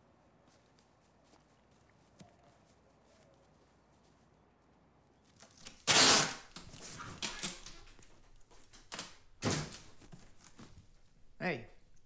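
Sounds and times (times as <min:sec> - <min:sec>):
packing tape ripping: 0:05.4 - 0:08.0.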